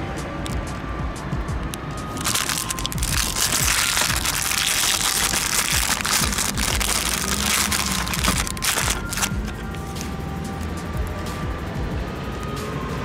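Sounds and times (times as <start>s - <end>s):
fuse fizzing and crackling: 2.2s - 9.8s.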